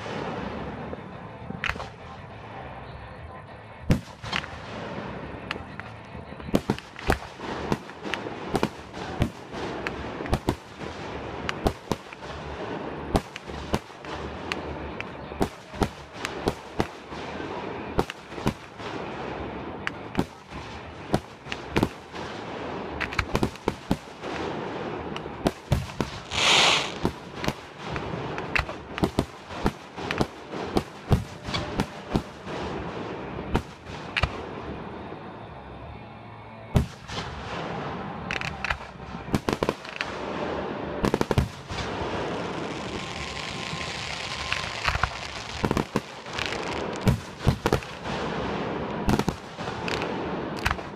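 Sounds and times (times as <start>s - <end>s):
firework shells bursting: 22.9s - 32.6s, 41.0s - 48.3s, 48.9s - 50.9s
firework hiss: 25.6s - 30.2s, 41.1s - 48.0s.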